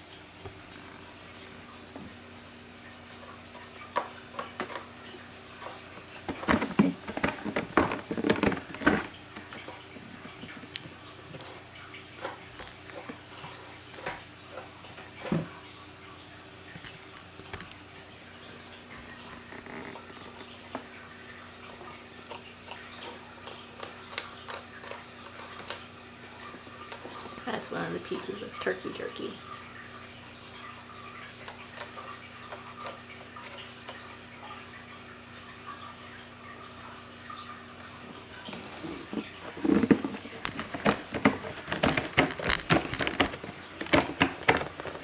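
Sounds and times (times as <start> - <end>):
cat chewing crunchy treat: 22.3 - 25.9.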